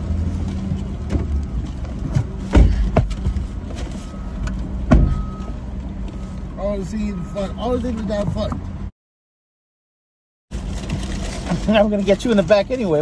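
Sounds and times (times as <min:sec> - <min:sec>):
car engine rumble: 0:00.0 - 0:08.9, 0:10.5 - 0:13.0
loud thumps: 0:02.2 - 0:03.4, 0:04.8 - 0:05.2.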